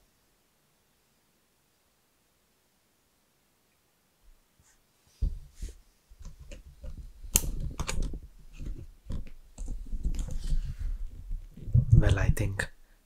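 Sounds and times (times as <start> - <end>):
rustling: 4.3 - 12.8
low thumps: 5.2 - 12.5
clicks and knocks: 6.2 - 11.4.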